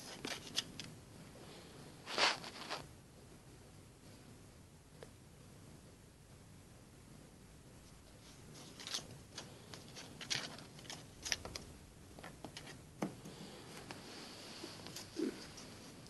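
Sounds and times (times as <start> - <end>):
claws scratching on cloth: 2.1 - 2.9.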